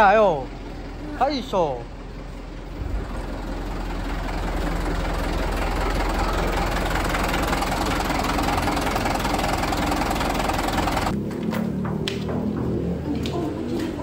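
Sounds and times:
diesel truck engine idling: 0.0 - 11.2.

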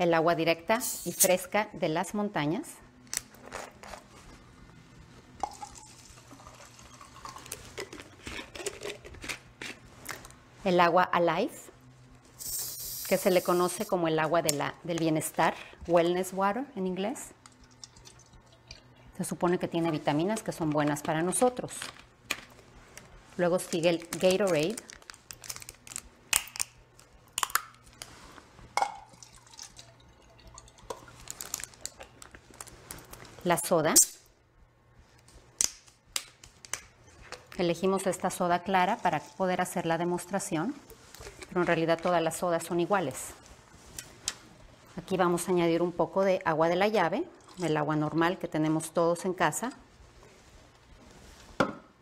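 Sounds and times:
water pouring into plastic cup: 29.1 - 31.9, 47.4 - 47.7.

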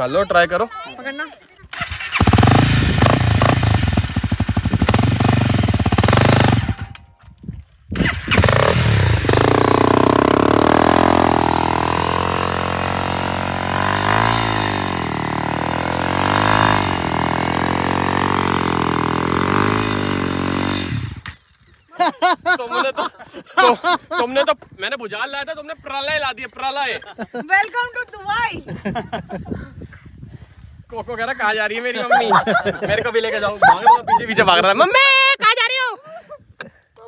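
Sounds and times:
dirt bike engine revving: 1.7 - 7.0, 8.0 - 21.4
wheel spinning in sand: 8.0 - 21.2.

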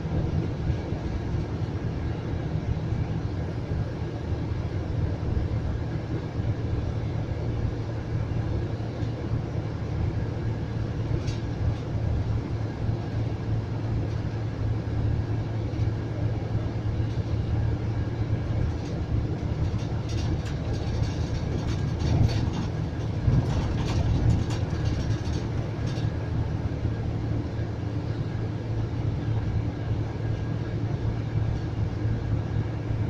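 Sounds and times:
coach engine and road drone: 0.0 - 33.0
light clicking and rattling: 18.6 - 26.2.

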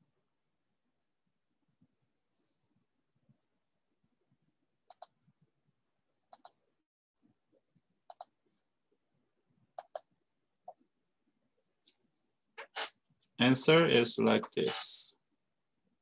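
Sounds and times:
computer mouse clicking: 4.9 - 5.2, 6.3 - 6.6, 8.1 - 8.4, 9.8 - 10.8.

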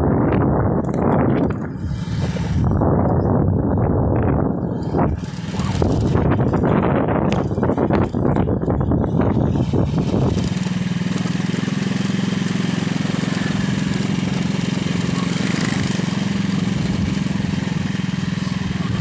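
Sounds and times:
small motorcycle engine running: 0.0 - 19.0.

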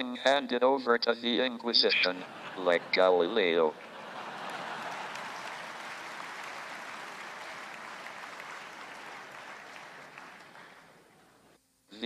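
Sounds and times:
audience applauding: 2.1 - 11.4.

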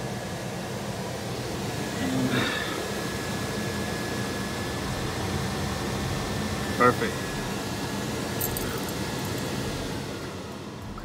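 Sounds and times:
blower fan running: 0.0 - 11.0
faint steady whine: 0.0 - 11.0.

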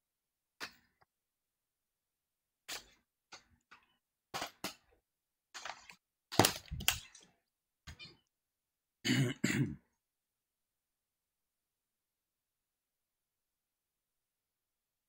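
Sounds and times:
person coughing: 9.0 - 9.9.

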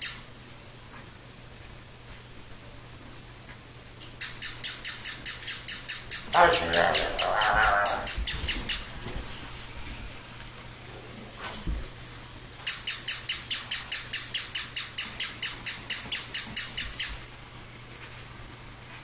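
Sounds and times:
toy puppy electronic yips: 0.0 - 0.2, 4.2 - 8.9, 12.6 - 17.2.

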